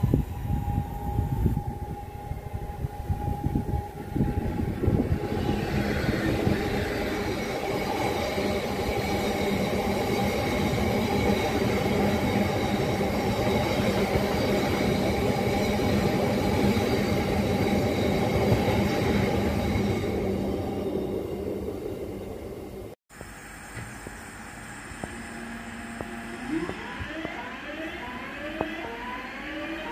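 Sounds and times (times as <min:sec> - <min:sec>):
high ringing tones: 0:00.0 - 0:22.6
steel wheels rumbling on rails: 0:00.0 - 0:23.0.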